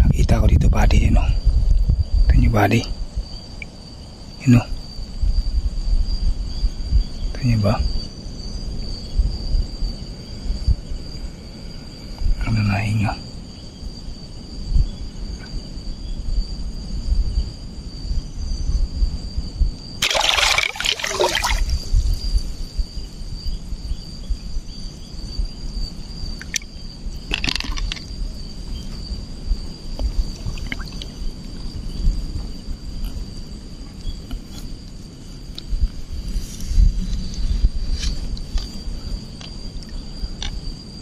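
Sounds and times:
rush of air bubbles: 20.0 - 22.4, 30.0 - 31.3
muffled underwater water movement: 27.4 - 33.4.

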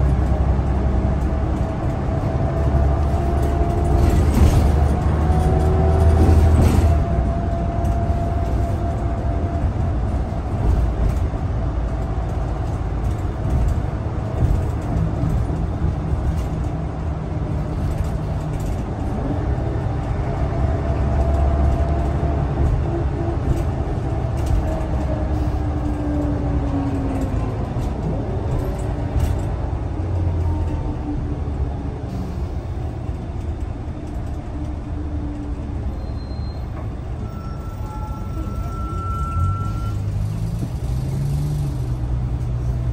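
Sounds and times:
bus engine and road rumble: 0.0 - 42.9.

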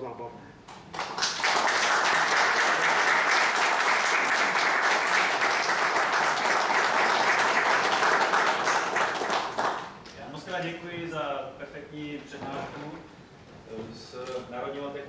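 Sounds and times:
audience applauding: 0.7 - 10.0.

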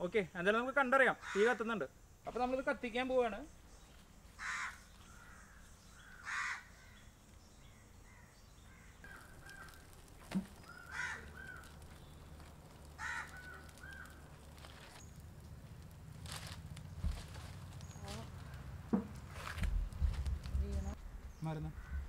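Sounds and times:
harsh bird calls: 1.1 - 1.9, 4.4 - 15.3, 21.1 - 22.0.

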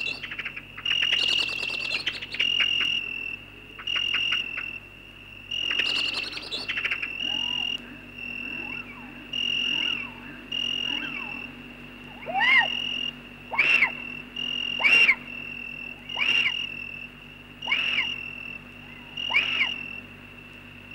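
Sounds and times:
high chirping calls: 0.0 - 3.1, 5.6 - 7.8, 8.4 - 17.0, 17.6 - 20.0
low steady hum: 0.0 - 20.9.

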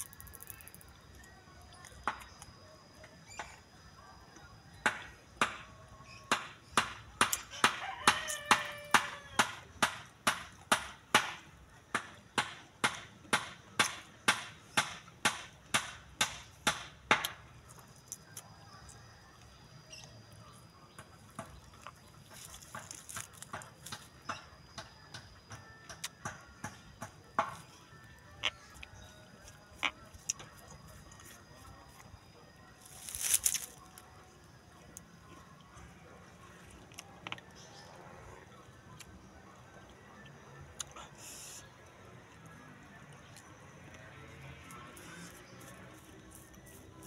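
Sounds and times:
crunchy chewing: 16.3 - 47.0.

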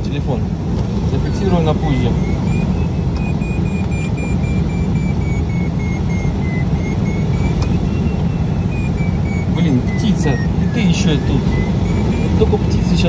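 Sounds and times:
variometer beeping: 1.1 - 13.0.

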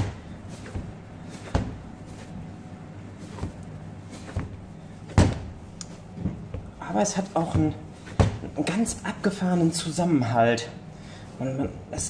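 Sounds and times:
dough thumping on metal: 0.0 - 2.3, 3.2 - 6.8, 7.4 - 8.6.

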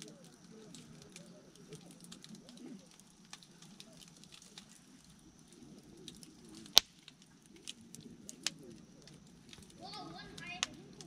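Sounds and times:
firewood crackling: 0.0 - 11.0.

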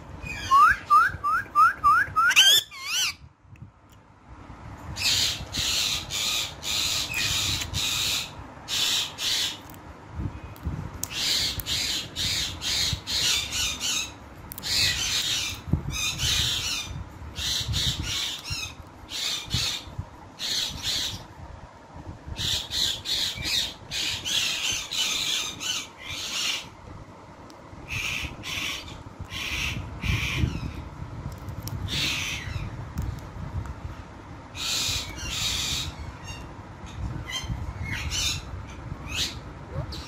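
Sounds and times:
parakeet squawking: 0.2 - 3.2, 5.0 - 9.6, 27.9 - 30.7.

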